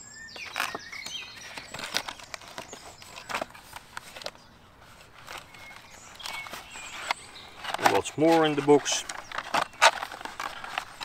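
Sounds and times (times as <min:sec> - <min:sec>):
cardboard box rustling and tapping: 0:05.2 - 0:11.0.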